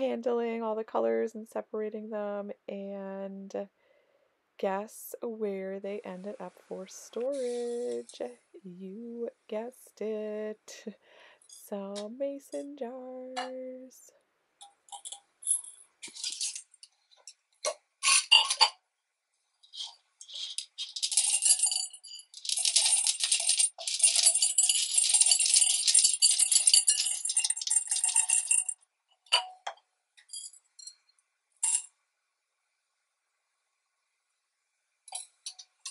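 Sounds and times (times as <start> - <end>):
wooden beads pouring into glass jar: 14.9 - 16.6, 19.7 - 28.8, 31.6 - 31.9
clicks of beads handled: 14.9 - 16.7, 19.7 - 21.6, 22.3 - 28.8.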